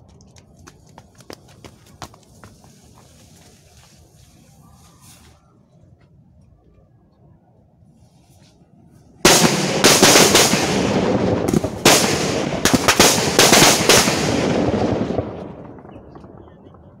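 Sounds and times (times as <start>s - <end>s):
firecracker string crackling: 9.2s - 17.0s.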